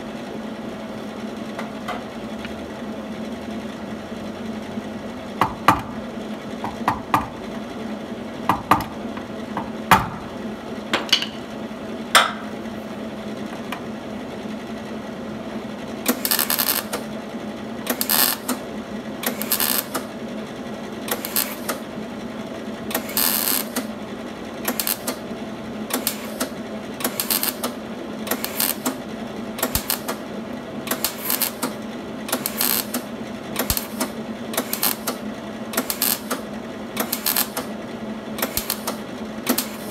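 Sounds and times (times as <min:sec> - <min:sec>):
welder tack welding bursts: 0:16.0 - 0:17.1, 0:17.8 - 0:18.6, 0:19.2 - 0:20.2, 0:21.1 - 0:21.9, 0:22.9 - 0:23.9, 0:24.6 - 0:25.2, 0:25.9 - 0:29.0, 0:29.6 - 0:37.8, 0:38.4 - 0:39.9.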